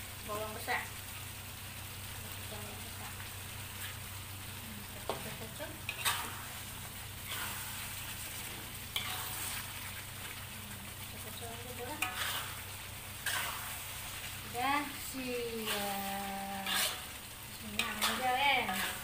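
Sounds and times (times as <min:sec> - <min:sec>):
gravy sizzling in a wok: 0:00.0 - 0:19.0
metal ladle scraping a pan: 0:05.8 - 0:10.4, 0:11.7 - 0:19.0.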